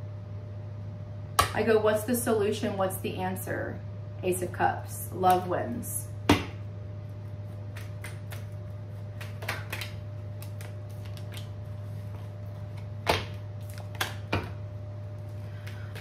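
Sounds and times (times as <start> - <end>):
steady low hum: 0.0 - 16.0
cards shuffling and clicking: 7.7 - 14.5.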